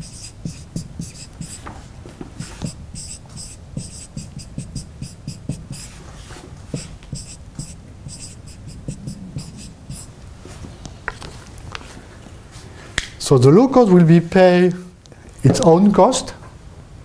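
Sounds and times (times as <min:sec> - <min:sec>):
marker pen writing on whiteboard: 0:00.0 - 0:06.0, 0:06.7 - 0:10.1.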